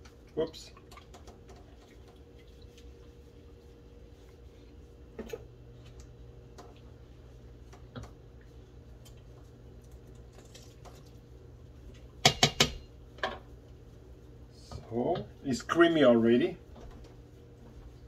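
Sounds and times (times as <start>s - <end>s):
steady low hum: 0.0s - 18.0s
spoon tapping against a pot: 12.2s - 12.8s.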